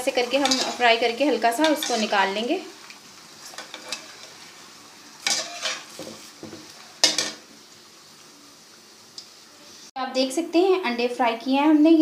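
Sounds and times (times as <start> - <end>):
metal spoon scraping a pan: 0.0 - 2.4, 3.4 - 4.5, 5.2 - 6.3, 7.0 - 7.4
oil sizzling: 0.0 - 11.3.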